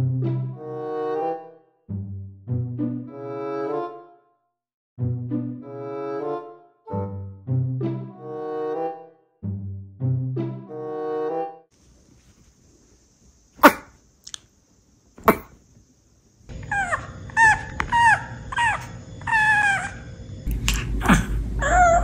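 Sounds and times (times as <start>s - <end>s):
small dog barking: 13.6s - 14.0s
dog squealing: 16.5s - 20.2s, 21.6s - 22.0s.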